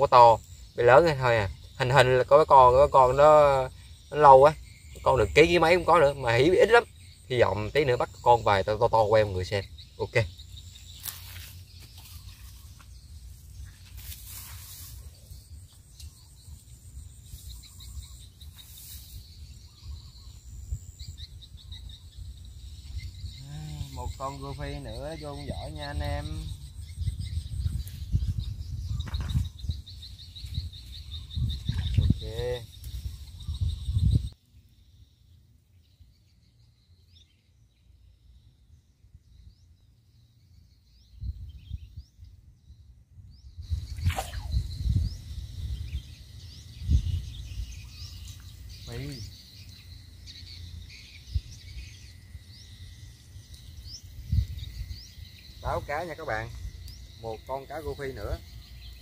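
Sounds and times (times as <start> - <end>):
insects buzzing: 0.0 - 59.0
small birds chirping: 0.0 - 59.0
wind on microphone: 14.5 - 34.4, 41.0 - 49.4, 51.1 - 52.1, 53.7 - 56.9.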